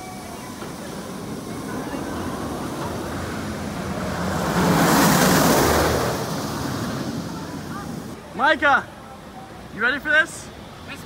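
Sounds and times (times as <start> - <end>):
roller coaster rushing past: 0.0 - 8.2.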